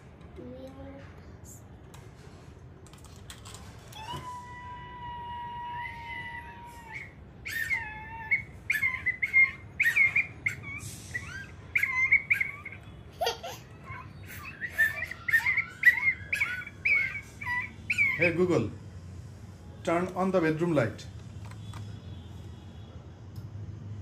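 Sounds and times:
toy whistle chirps: 0:06.6 - 0:12.9, 0:14.3 - 0:18.3.

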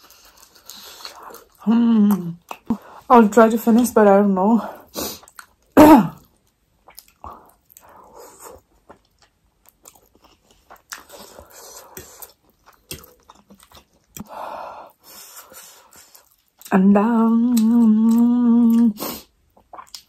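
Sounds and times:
chewing with mouth clicks: 0:00.0 - 0:03.0, 0:05.1 - 0:14.3, 0:15.2 - 0:16.7, 0:17.5 - 0:20.0.

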